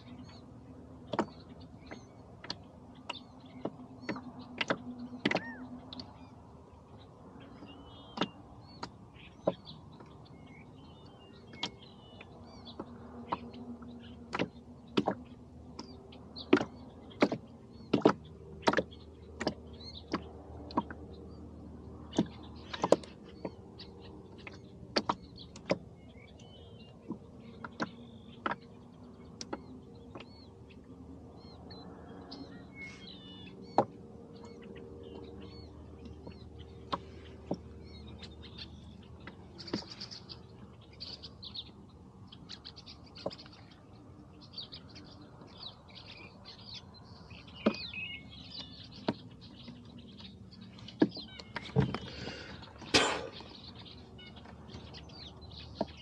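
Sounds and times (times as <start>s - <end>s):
small birds chirping: 0.0s - 56.0s
sharp knocks and clicks: 1.0s - 6.1s, 8.1s - 10.1s, 14.3s - 21.0s, 24.4s - 30.4s, 36.0s - 37.7s, 48.6s - 49.8s.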